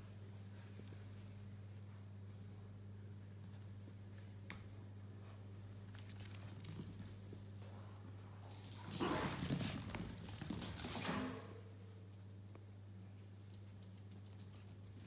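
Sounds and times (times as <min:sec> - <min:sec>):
puppy claws pattering on floor: 0:05.8 - 0:11.4, 0:12.1 - 0:15.0.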